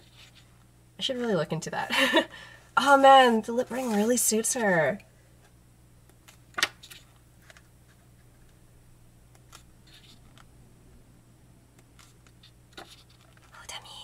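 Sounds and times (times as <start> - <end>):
pages rustling: 0.0 - 0.5, 3.6 - 4.5, 6.2 - 8.6, 11.9 - 13.6.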